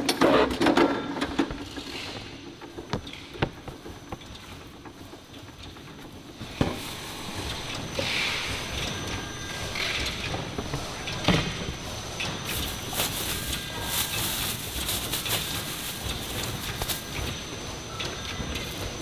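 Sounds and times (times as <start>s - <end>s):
factory background noise: 0.0s - 19.0s
plastic bags rustling: 12.4s - 17.4s.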